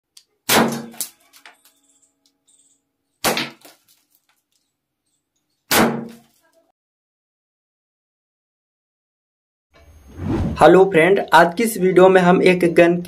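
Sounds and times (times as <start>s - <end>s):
toy cork gun bangs: 0.4s - 1.7s, 3.2s - 3.8s, 5.7s - 6.3s.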